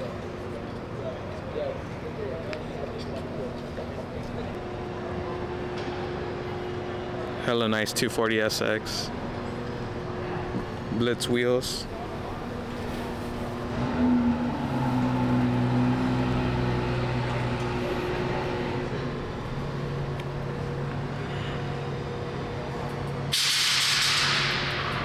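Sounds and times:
vehicle engine idling: 11.9s - 22.7s
loud hiss of air: 23.3s - 24.7s.

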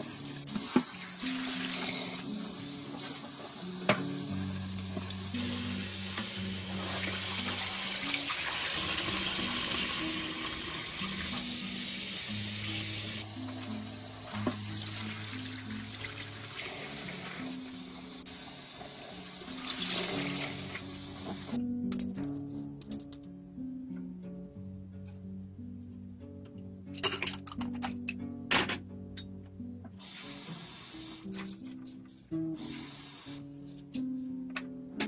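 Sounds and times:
tap water running into a pot: 0.0s - 21.6s
soft background music: 0.0s - 35.0s.

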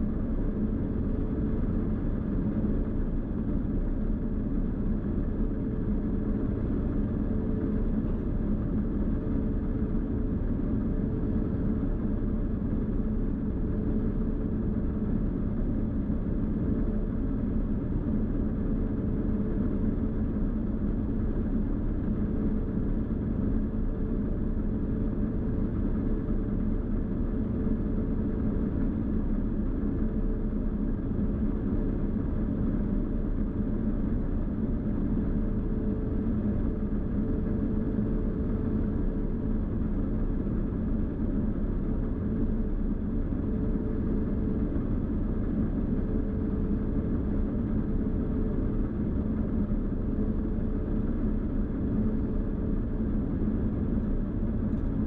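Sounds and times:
combine harvester drone: 0.0s - 55.0s.

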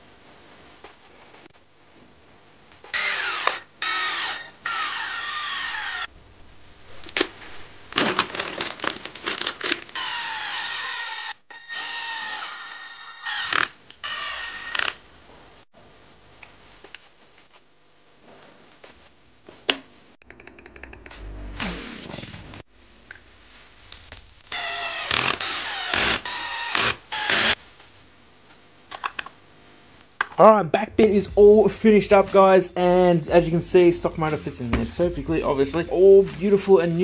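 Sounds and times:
power driver motor whine: 2.9s - 6.1s.

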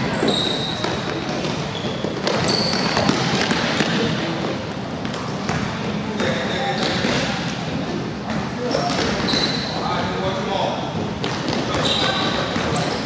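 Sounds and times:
hubbub in a hall: 0.0s - 13.0s
sneakers squeaking: 0.0s - 13.0s
basketball bouncing: 0.2s - 7.3s.

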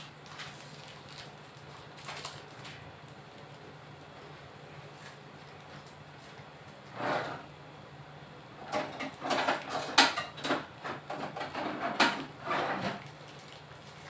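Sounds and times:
kitchen utensils knocking and scraping: 8.6s - 13.0s.

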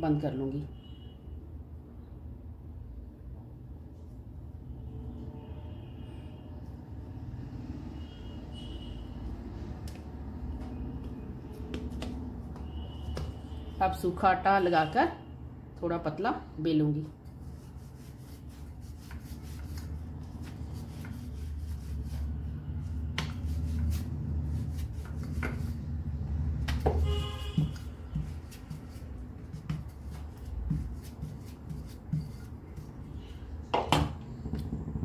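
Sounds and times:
rolling pin rolling dough: 17.1s - 33.2s.

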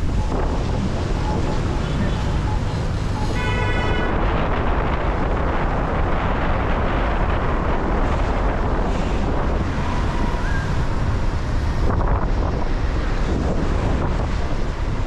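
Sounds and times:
traffic on wet street: 0.0s - 15.0s
wind on microphone: 0.0s - 15.0s.

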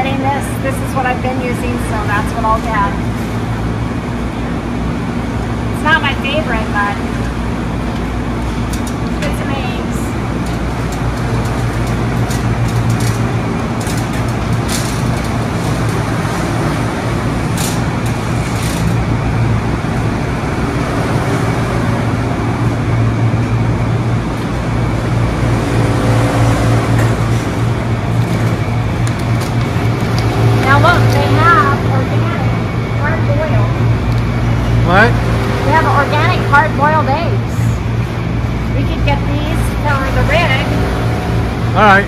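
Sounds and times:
machinery hum and rushing air: 0.0s - 42.0s
shopping cart clicking and rattling: 10.4s - 16.8s.

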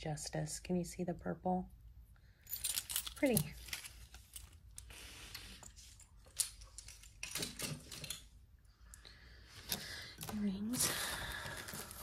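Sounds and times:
jewelry clicks and rustles: 2.4s - 8.4s
necklace pieces clacking: 2.5s - 8.3s.

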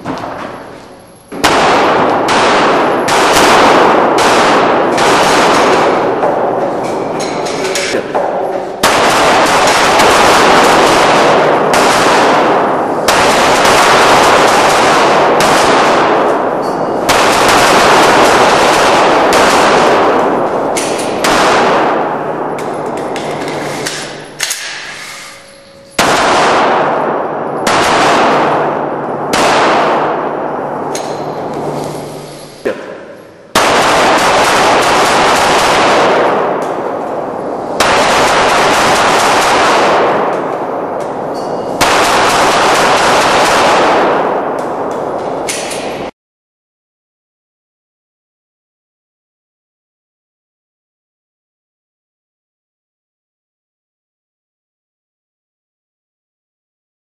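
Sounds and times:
pistol shots echoing: 1.3s - 25.0s, 25.6s - 46.1s.

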